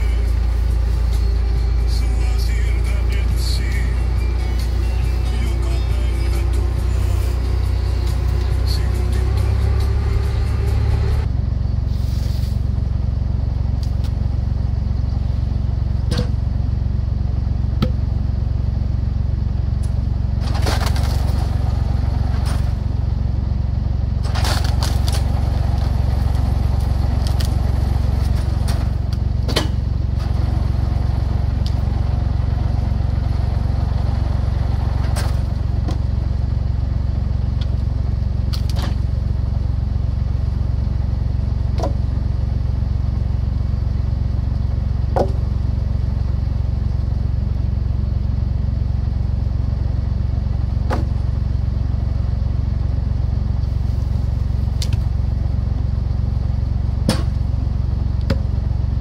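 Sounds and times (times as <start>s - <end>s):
tractor engine running: 0.0s - 59.0s
logs cracking as they split: 20.4s - 22.7s, 24.2s - 29.6s, 38.5s - 39.0s.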